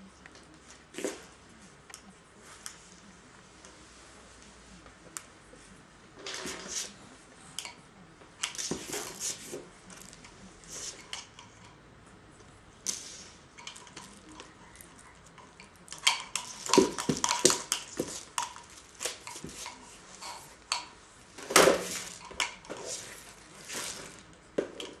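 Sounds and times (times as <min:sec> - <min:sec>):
plastic toys clattering: 0:12.9 - 0:25.0.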